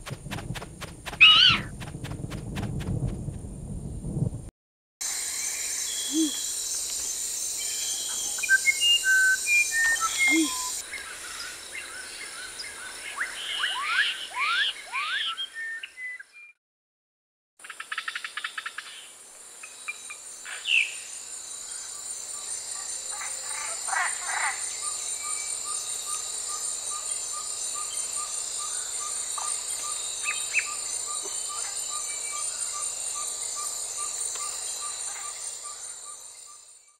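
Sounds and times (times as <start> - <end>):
bird chirps: 1.2 - 1.7, 7.8 - 10.8
high-pitched insect chorus: 5.0 - 14.2, 18.0 - 36.9.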